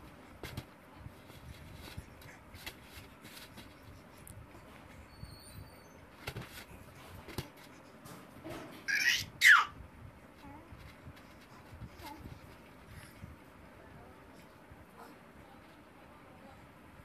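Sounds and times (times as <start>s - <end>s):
faint knocks and rustles: 0.0s - 8.9s
faint high squeaks: 5.0s - 6.2s.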